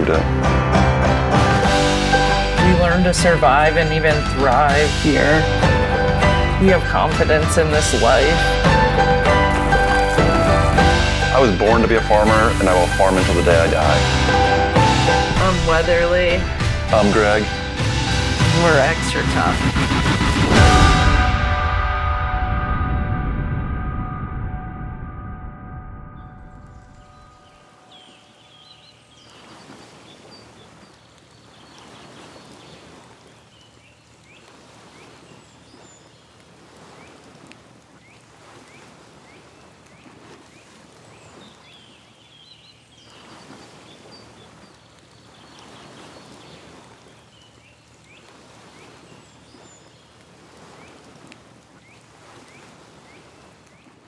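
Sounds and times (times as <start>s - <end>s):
water washing in swells: 0.0s - 54.0s
gong ringing: 20.5s - 27.4s.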